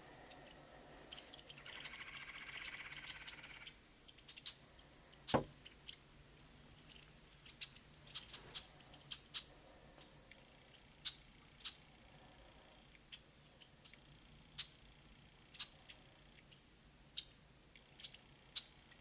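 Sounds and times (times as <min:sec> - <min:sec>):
sharp knock: 0:05.3 - 0:05.5
faint scattered clicks: 0:06.9 - 0:11.9, 0:12.8 - 0:19.0.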